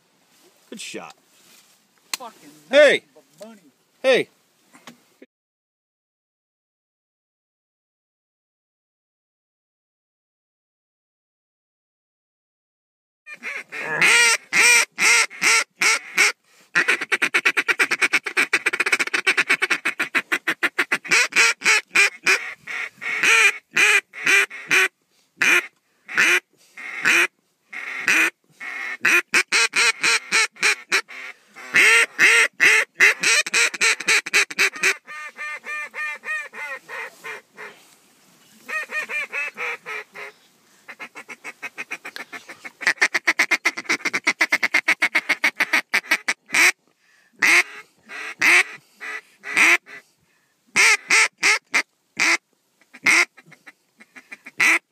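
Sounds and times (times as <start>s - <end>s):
duck call quacking: 13.3s - 37.8s, 38.7s - 46.8s, 47.4s - 50.1s, 50.7s - 54.9s.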